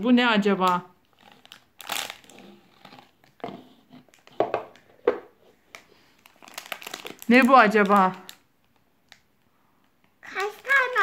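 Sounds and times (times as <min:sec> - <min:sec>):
plastic candy wrapper crinkling: 0:01.0 - 0:04.9, 0:05.6 - 0:09.5, 0:10.1 - 0:11.0.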